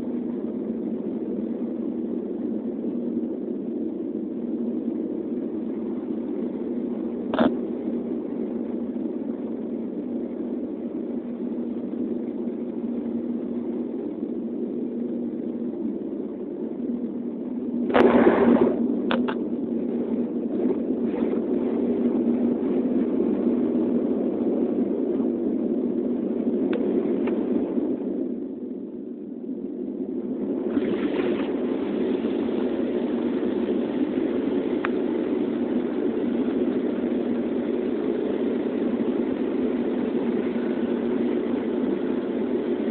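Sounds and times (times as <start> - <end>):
airliner engines droning in cabin: 0.0 - 42.9
low hum: 0.0 - 42.9
brief loud noise: 17.9 - 18.8.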